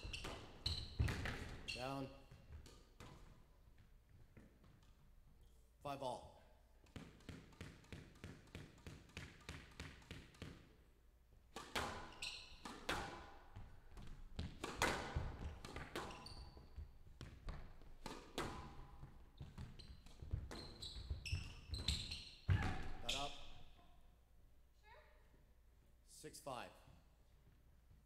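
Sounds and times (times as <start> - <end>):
squash ball bouncing on floor: 0.0 - 1.7, 2.3 - 5.0, 6.8 - 10.7, 11.5 - 23.0
shoes squeaking on court floor: 0.0 - 3.4, 11.7 - 23.8
racket striking ball: 6.8 - 10.7, 11.5 - 16.2, 17.4 - 18.9.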